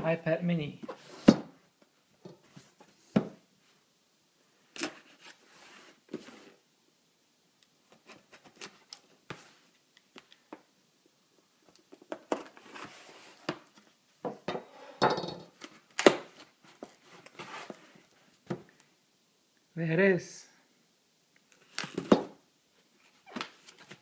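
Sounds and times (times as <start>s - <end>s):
cardboard flaps rustling and scraping: 16.2s - 18.0s.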